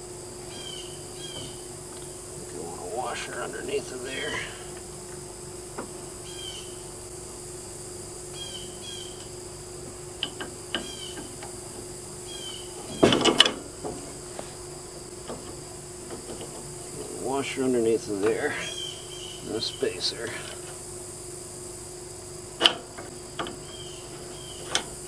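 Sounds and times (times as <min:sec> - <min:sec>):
faint steady hum: 0:00.0 - 0:25.0
birds chirping: 0:00.3 - 0:07.2, 0:08.1 - 0:13.2, 0:14.6 - 0:20.8, 0:23.1 - 0:25.0
metal knocks: 0:12.8 - 0:14.2.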